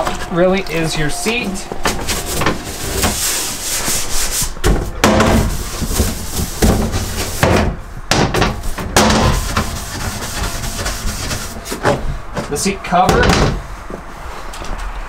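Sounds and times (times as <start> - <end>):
scrub brush rubbing plastic: 0.0 - 7.6, 8.6 - 12.7.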